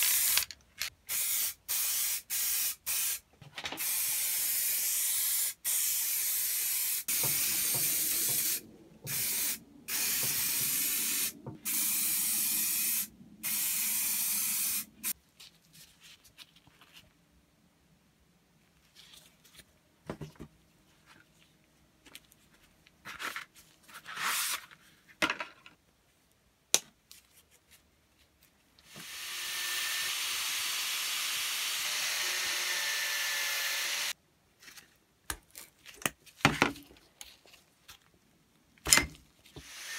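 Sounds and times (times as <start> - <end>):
spray paint can hissing: 1.1 - 3.2, 3.8 - 15.2.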